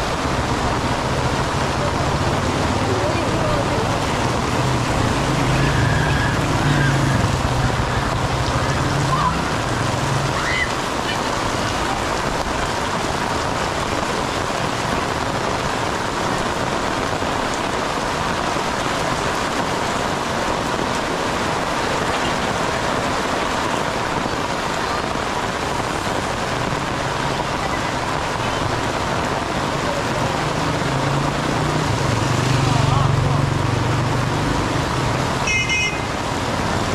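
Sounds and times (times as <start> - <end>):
heavy rain on pavement: 0.0 - 36.9.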